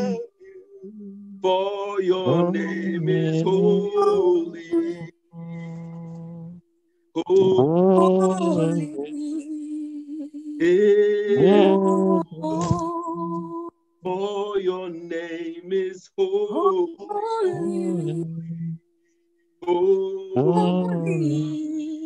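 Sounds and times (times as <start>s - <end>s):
man singing worship song: 1.4s - 6.3s, 7.2s - 9.4s, 10.6s - 13.0s, 14.0s - 18.7s, 19.6s - 21.6s.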